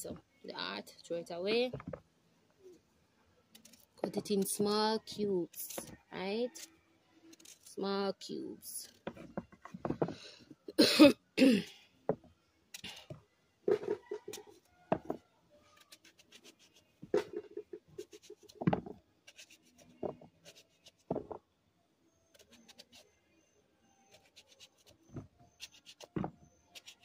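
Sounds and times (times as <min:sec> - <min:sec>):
person coughing: 0:10.7 - 0:11.7
knife cutting breadfruit: 0:13.7 - 0:21.4, 0:22.3 - 0:23.2, 0:24.1 - 0:27.0.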